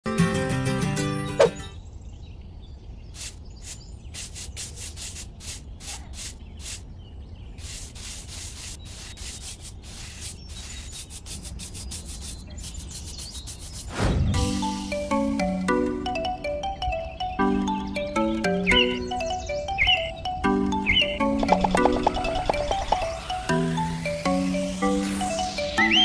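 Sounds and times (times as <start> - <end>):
paintbrush scrubbing on cement: 3.2 - 6.8, 7.6 - 14.0.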